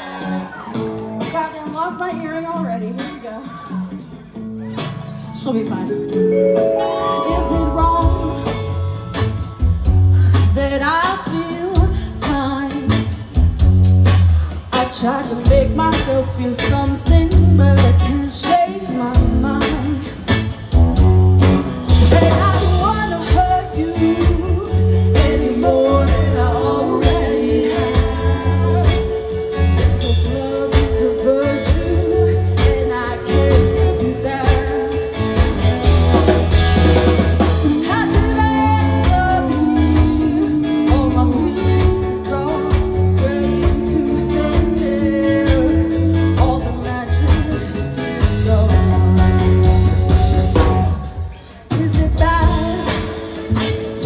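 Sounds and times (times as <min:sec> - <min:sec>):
electric guitars: 0:00.0 - 0:54.0
woman singing: 0:07.0 - 0:09.4, 0:10.2 - 0:13.6, 0:14.7 - 0:20.5, 0:22.0 - 0:36.1, 0:37.4 - 0:53.6
steady drum beat: 0:19.2 - 0:54.0.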